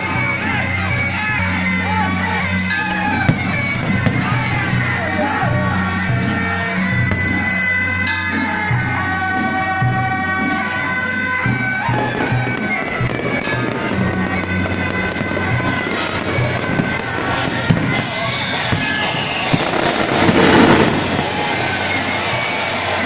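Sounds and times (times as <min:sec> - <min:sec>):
fireworks crackling: 0:00.0 - 0:07.6, 0:10.6 - 0:23.0
music: 0:00.0 - 0:23.0
fireworks bangs: 0:02.6 - 0:05.4, 0:11.6 - 0:23.0.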